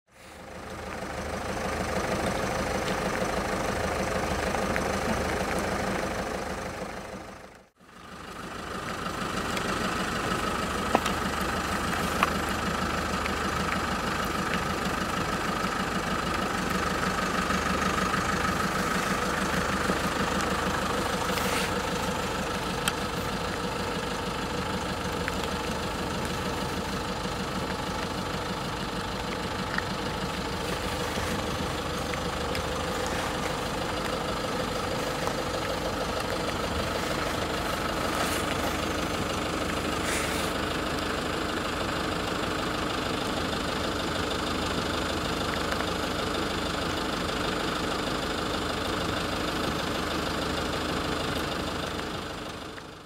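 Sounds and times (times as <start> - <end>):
car engine idling: 0.1 - 53.0
steady rain: 0.1 - 53.0.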